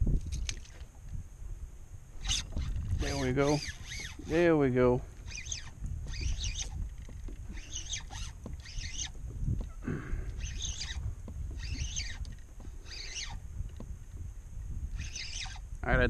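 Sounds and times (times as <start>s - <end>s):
wind rumbling on microphone: 0.0s - 16.0s
water lapping at kayak: 2.1s - 15.8s
bird chirping calls: 5.2s - 6.8s, 7.4s - 13.4s, 14.9s - 15.6s.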